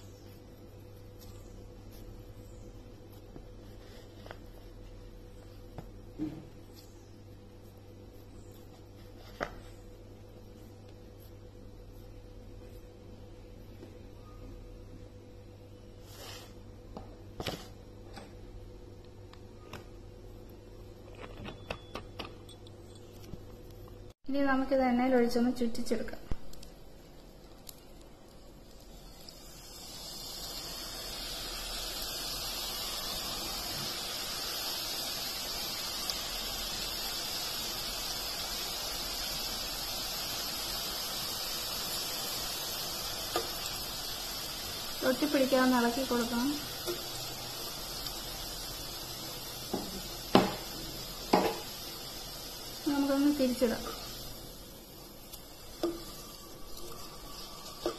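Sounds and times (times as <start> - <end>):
oil sizzling while deep-frying: 25.9 - 57.9.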